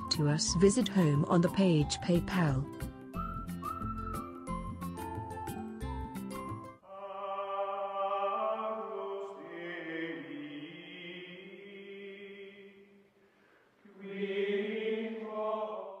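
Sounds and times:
chant-like voices holding notes: 6.8s - 13.0s, 13.8s - 16.0s.

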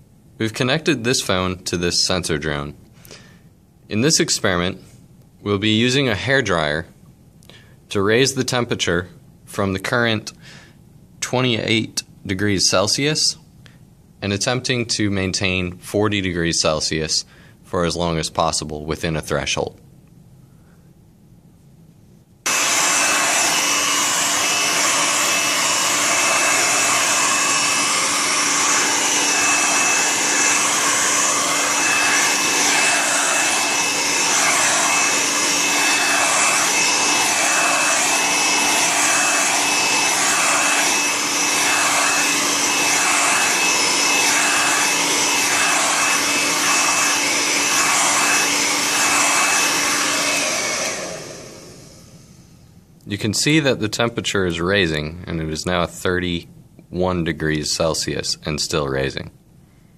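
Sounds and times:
hair dryer running: 22.5s - 52.5s.

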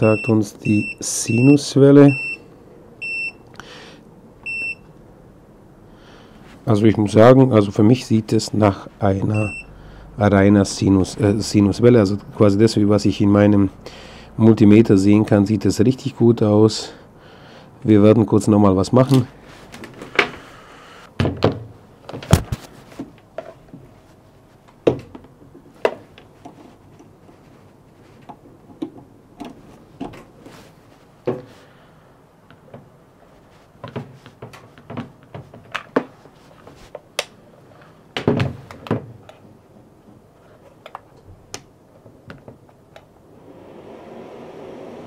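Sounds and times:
knocks of equipment handled: 21.2s - 23.8s.

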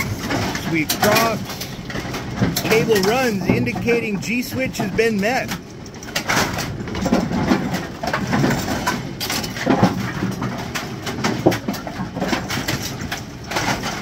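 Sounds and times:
pinsetter clattering and knocking: 0.0s - 14.0s.

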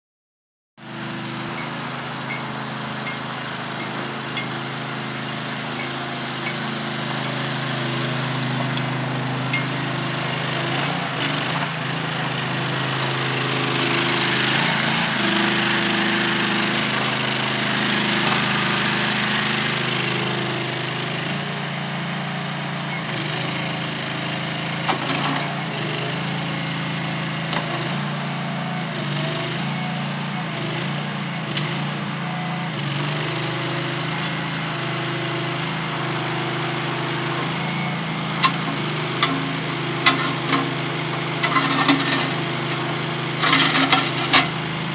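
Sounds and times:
small engine running: 0.8s - 44.9s.

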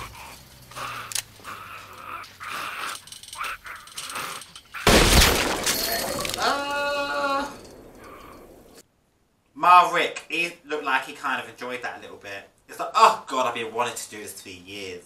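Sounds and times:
zombie groaning and snarling: 0.0s - 4.8s.

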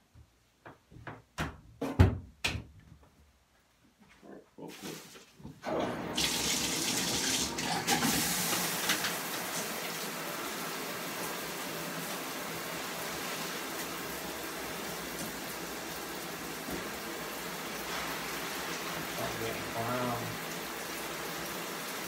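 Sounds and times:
water running into basin: 5.6s - 22.0s.

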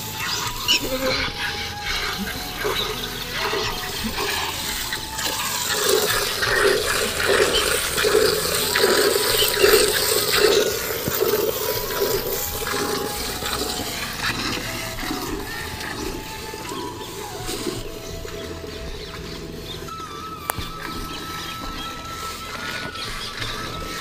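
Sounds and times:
milk squirting into metal pail: 0.5s - 17.8s.

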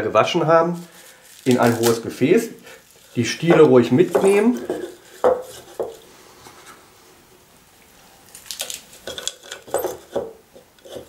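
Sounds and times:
herb leaves rustling and crackling: 0.5s - 5.6s, 8.3s - 9.1s.

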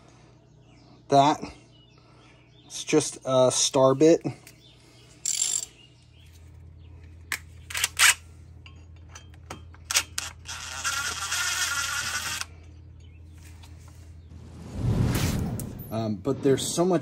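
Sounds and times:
cordless screwdriver running: 10.2s - 12.5s.

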